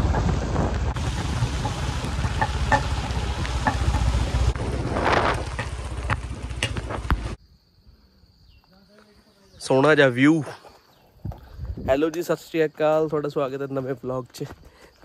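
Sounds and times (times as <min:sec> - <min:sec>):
low motorcycle rumble: 0:00.0 - 0:07.4
wind buffeting microphone: 0:00.0 - 0:07.4, 0:11.2 - 0:12.0.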